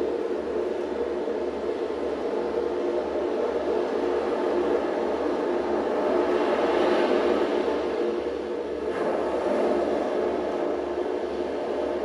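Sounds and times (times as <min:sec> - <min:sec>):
faint hum: 0:00.0 - 0:12.0
dense rumbling noise: 0:05.4 - 0:12.0.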